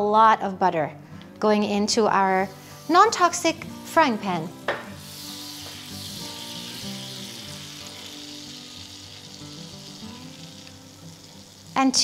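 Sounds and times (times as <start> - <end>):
quiet background music: 0.0 - 12.0
butter sizzling in frying pan: 2.6 - 12.0.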